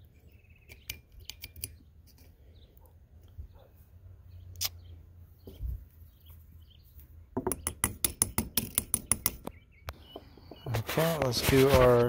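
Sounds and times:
screwdriver handle tapping metal: 7.4 - 9.5.

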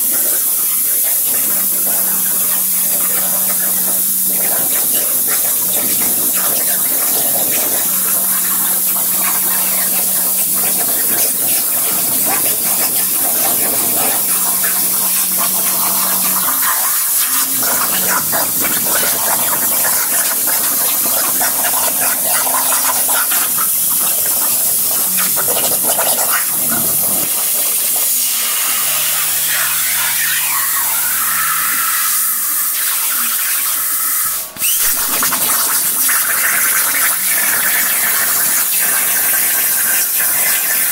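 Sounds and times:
plasma cutter hissing: 0.0 - 40.9.

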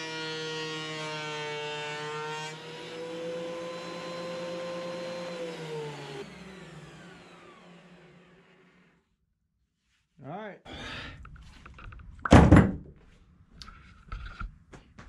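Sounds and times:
planer cutting board: 0.0 - 9.0
thickness planer motor whining: 0.0 - 9.1.

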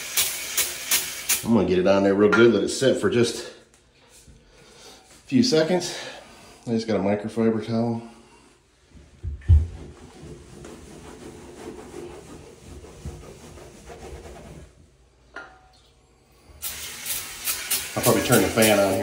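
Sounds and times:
loud spray hiss: 0.0 - 1.5, 16.6 - 19.0
towel wiping wet floor: 8.9 - 14.8
thump: 9.2 - 9.9.

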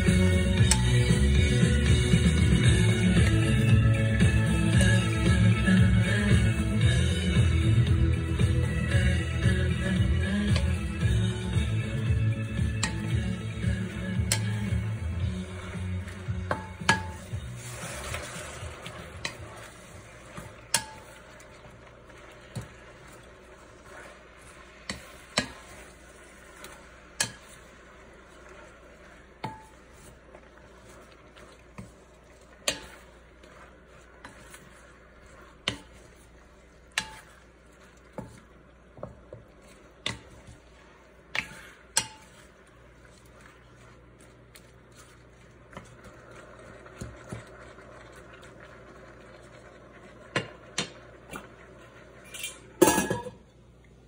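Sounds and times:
food sizzling: 0.0 - 54.0
wooden spatula knocking on pan: 16.3 - 17.4, 24.9 - 25.8, 35.6 - 36.0, 38.1 - 40.6.

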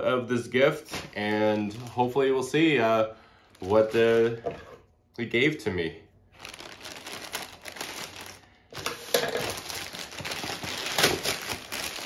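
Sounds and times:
package wrapping crinkling: 6.3 - 12.0.

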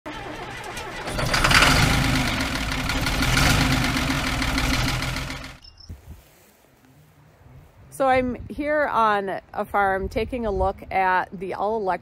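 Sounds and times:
engine running: 0.1 - 5.6.

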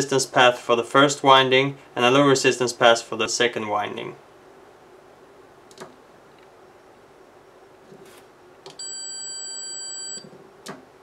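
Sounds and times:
multimeter continuity beep: 8.8 - 10.3.

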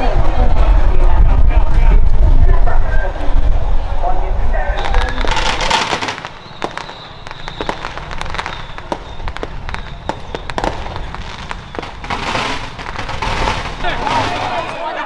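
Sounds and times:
firecrackers cracking: 4.8 - 15.0.

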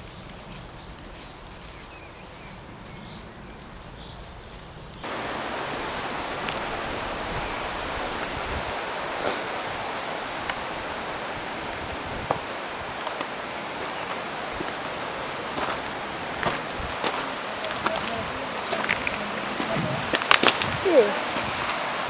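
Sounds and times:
wind rumble on microphone: 0.0 - 22.0
mountain stream rushing over stones: 5.0 - 22.0.

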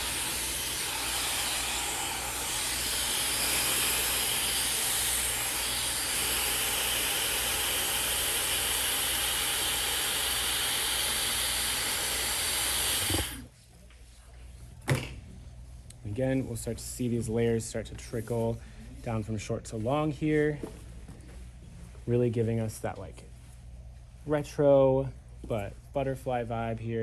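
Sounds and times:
hair dryer blowing: 0.0 - 13.5.

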